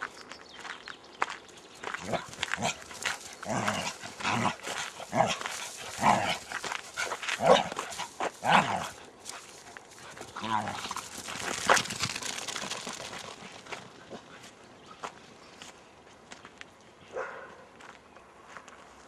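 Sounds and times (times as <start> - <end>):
dogs barking: 2.0 - 9.0, 17.1 - 17.7.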